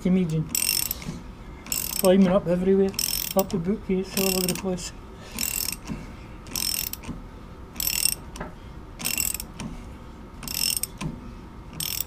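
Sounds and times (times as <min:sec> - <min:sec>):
socket ratchet clicking: 0:00.3 - 0:02.3, 0:02.9 - 0:03.6, 0:04.2 - 0:04.7, 0:05.4 - 0:07.2, 0:07.8 - 0:08.4, 0:09.0 - 0:09.7, 0:10.4 - 0:11.1, 0:11.7 - 0:12.0.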